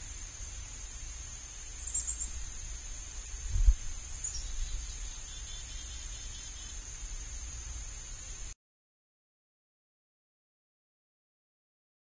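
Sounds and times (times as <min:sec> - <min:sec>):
high-pitched insect drone: 0:00.0 - 0:07.4
faint bird chips: 0:01.8 - 0:02.4
high bird chirps: 0:01.8 - 0:02.4, 0:04.1 - 0:06.8.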